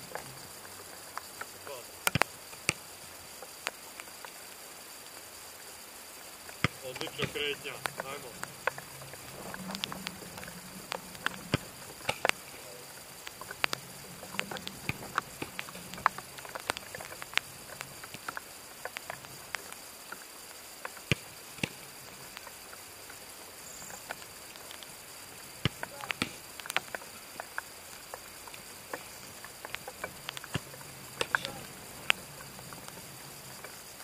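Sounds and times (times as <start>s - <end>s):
balls bouncing on artificial turf: 2.0s - 2.8s, 6.6s - 7.5s, 13.6s - 17.4s
faint low hum: 5.5s - 19.8s, 28.4s - 34.0s
footballs being struck: 6.6s - 12.6s, 13.6s - 18.3s, 21.1s - 21.8s, 25.6s - 26.4s, 30.0s - 32.2s.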